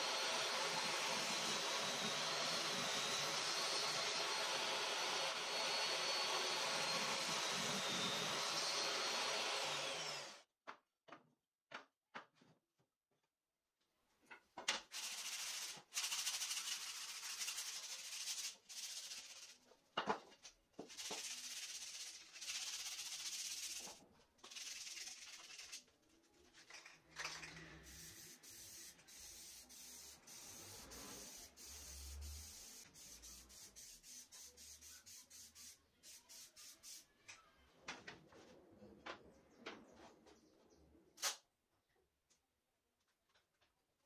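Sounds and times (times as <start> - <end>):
sandpaper rasping on wood: 15.0 - 19.6, 21.0 - 25.8, 27.9 - 37.0.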